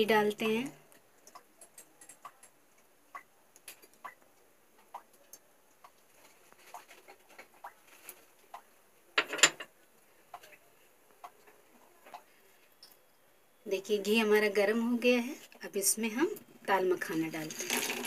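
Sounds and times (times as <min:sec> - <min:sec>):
ghee ticking and popping: 0:00.0 - 0:08.8, 0:09.9 - 0:13.0.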